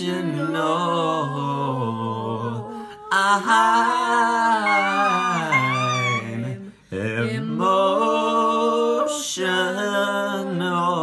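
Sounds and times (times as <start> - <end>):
person humming long notes: 4.6 - 6.6.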